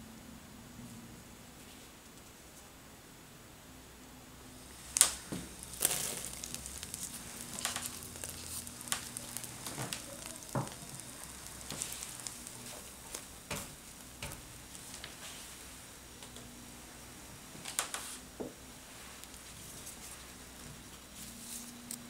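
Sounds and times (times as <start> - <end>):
butter sizzling in a frying pan: 4.6 - 16.2
spatula tapping and scraping: 4.7 - 15.3.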